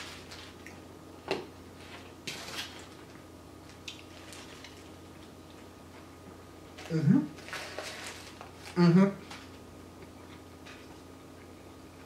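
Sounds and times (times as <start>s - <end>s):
foil wrapper crinkling: 0.0s - 0.7s, 1.9s - 5.3s, 6.8s - 9.6s.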